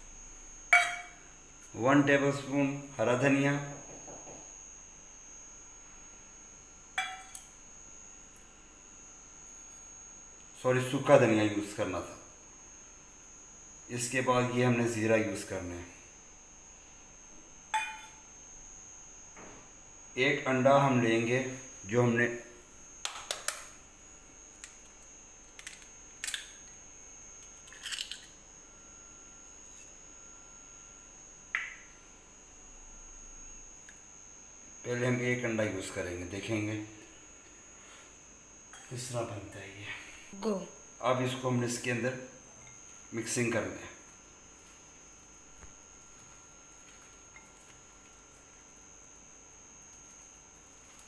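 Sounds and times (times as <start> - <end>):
faint high-pitched whine: 0.0 - 51.0
egg cracked against metal bowl: 0.7 - 1.2, 7.0 - 7.5, 17.8 - 18.2, 23.0 - 23.7, 31.6 - 31.9
small click: 31.5 - 31.9.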